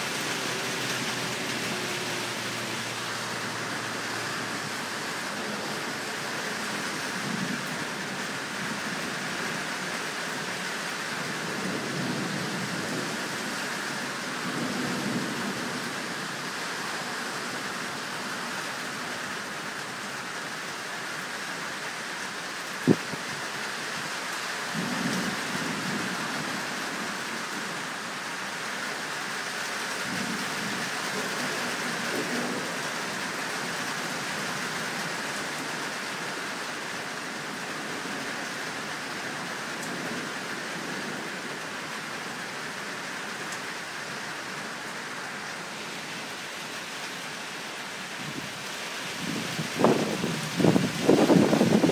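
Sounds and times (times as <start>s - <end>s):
steady rain: 0.0s - 51.9s
thunder rumbling: 49.2s - 51.9s.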